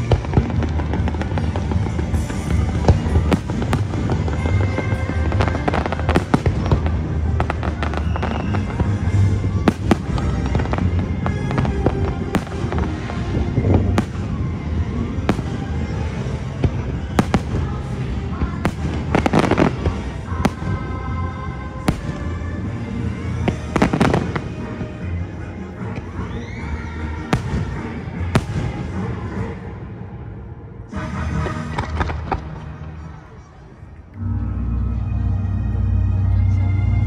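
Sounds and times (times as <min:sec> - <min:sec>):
fireworks bursting and crackling: 0:00.0 - 0:26.3, 0:27.2 - 0:29.5, 0:31.4 - 0:33.4
background music: 0:00.0 - 0:37.0.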